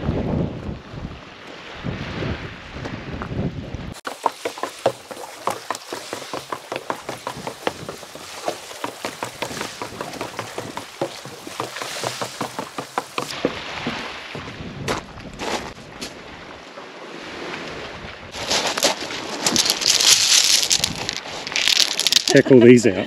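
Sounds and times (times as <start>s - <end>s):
footsteps on wooden stairs: 4.0s - 15.1s.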